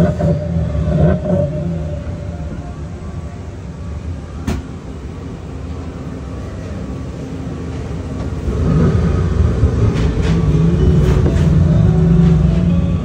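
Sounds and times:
ride car rumbling on track: 0:00.0 - 0:13.0.

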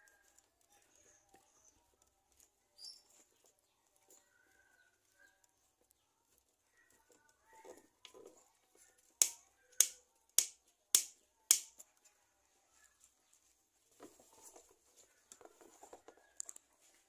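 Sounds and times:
sharp clicks: 0:09.2 - 0:11.8.

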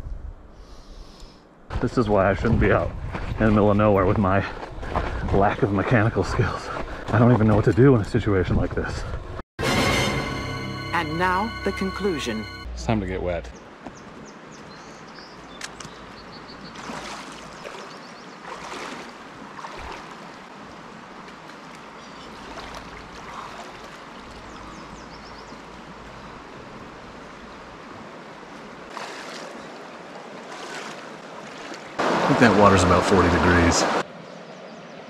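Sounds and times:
shallow river rushing: 0:13.7 - 0:34.3
person splashing in water: 0:16.7 - 0:20.5, 0:21.3 - 0:24.4, 0:28.9 - 0:29.8, 0:30.4 - 0:32.0.

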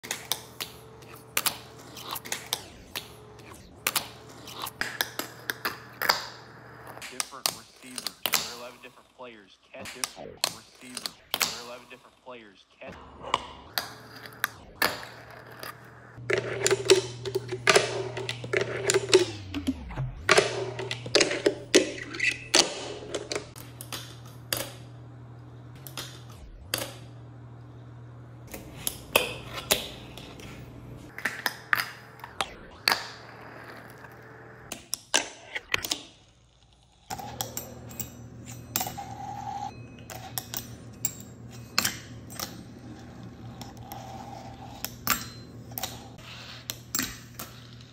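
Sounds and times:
steady low hum: 0:00.0 - 0:34.7, 0:37.1 - 0:47.9.

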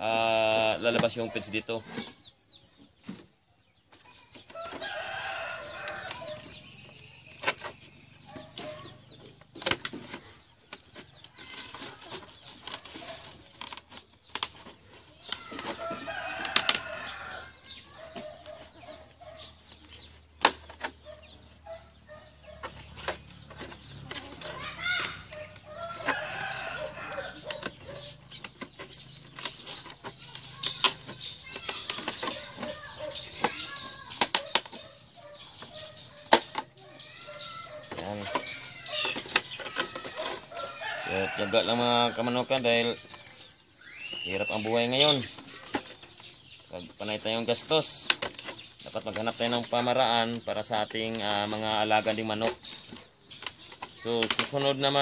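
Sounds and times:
chickens clucking: 0:00.0 - 0:55.0.

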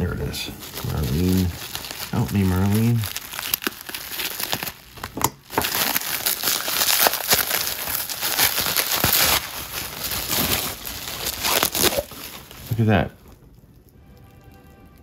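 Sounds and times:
bubble wrap crinkling: 0:00.0 - 0:15.0.

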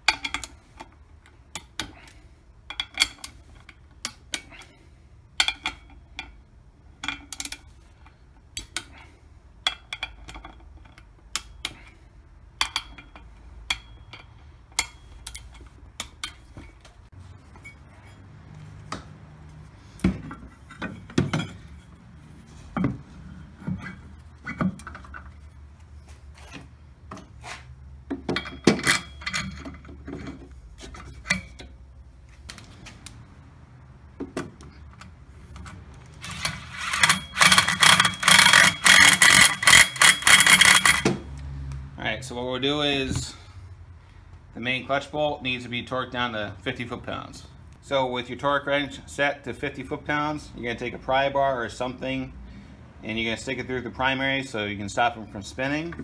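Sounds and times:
ratchet wrench clicking: 0:36.2 - 0:41.1.

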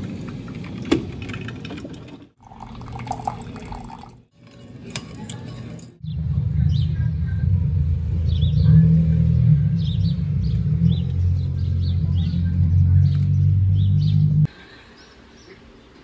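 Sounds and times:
coffee maker gurgling and dripping: 0:00.0 - 0:04.3
steady low rumble: 0:06.0 - 0:14.5.

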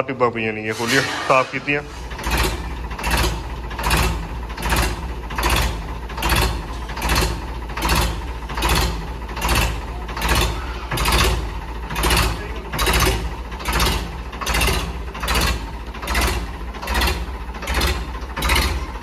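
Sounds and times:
machine rumbling: 0:00.0 - 0:19.0
hissing surge: 0:00.7 - 0:02.4.

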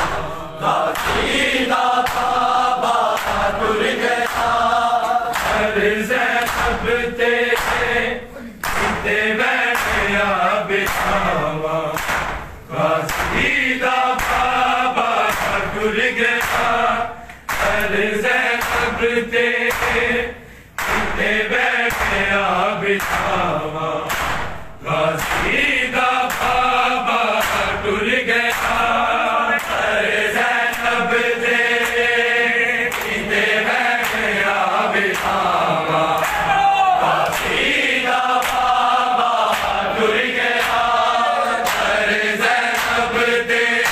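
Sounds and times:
men chanting in unison: 0:00.0 - 0:43.9
hands striking bare chests: 0:12.0 - 0:12.5, 0:23.0 - 0:23.4.

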